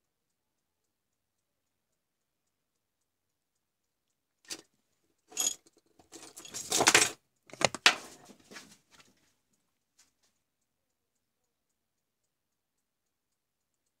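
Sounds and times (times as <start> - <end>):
test probes knocking and rattling: 5.3 - 8.0.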